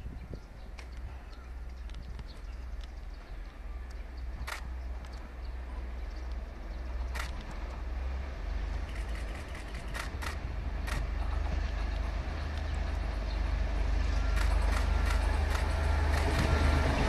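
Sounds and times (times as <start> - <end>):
freight train rumble: 0.0 - 17.0
short sharp clicks: 8.9 - 11.1.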